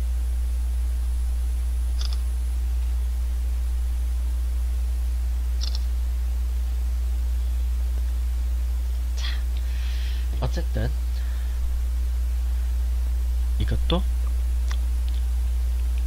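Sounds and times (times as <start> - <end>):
low electrical hum: 0.0 - 16.0
camera shutter double click: 2.0 - 2.2, 5.6 - 5.9.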